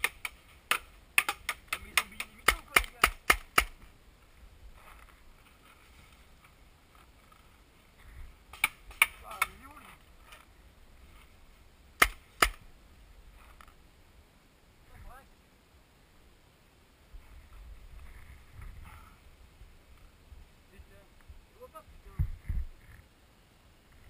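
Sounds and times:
paintball gun cracks: 0.0s - 3.8s, 8.5s - 9.6s, 12.0s - 12.6s.

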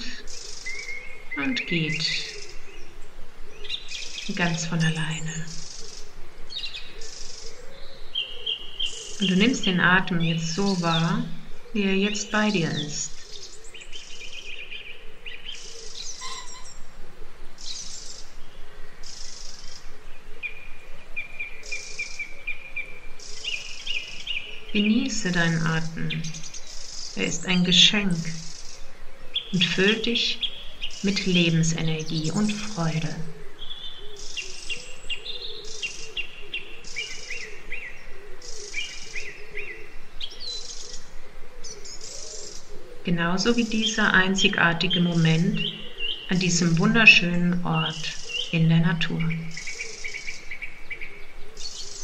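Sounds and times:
birds singing: 0.0s - 52.0s
high thin bird trilling: 16.1s - 16.8s.

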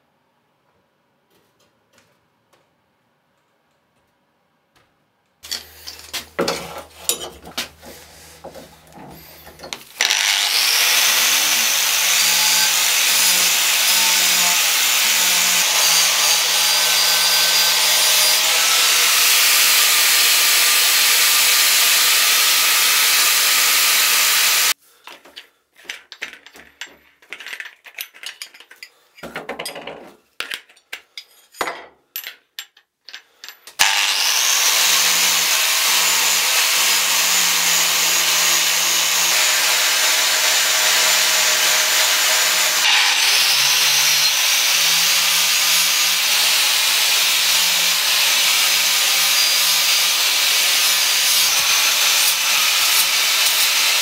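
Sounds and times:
angle grinder grinding steel: 5.4s - 24.8s, 33.8s - 54.0s.

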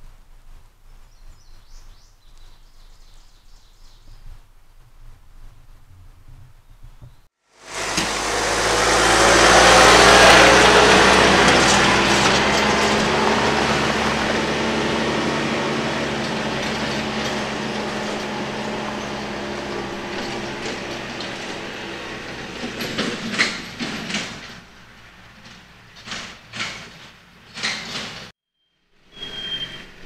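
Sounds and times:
tractor diesel engine passing: 7.6s - 27.7s.

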